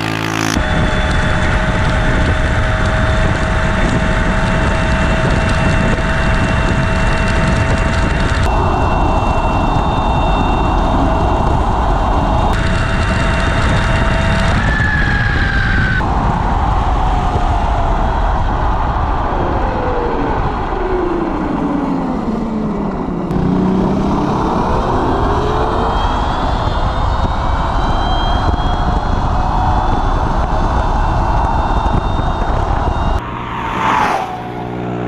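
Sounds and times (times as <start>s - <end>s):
electric motor whine: 0.0s - 16.6s
wind noise on microphone: 0.0s - 35.0s.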